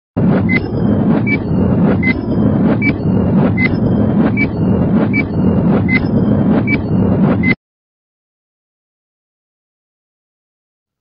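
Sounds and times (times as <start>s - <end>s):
loud steady rumble: 0.2s - 7.6s
electronic countdown beeps: 0.4s - 7.6s.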